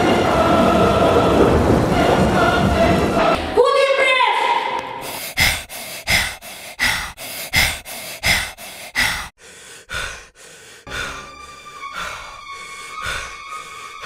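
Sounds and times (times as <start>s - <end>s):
heavy breathing: 4.9s - 14.0s
eerie music with held tones: 10.8s - 14.0s.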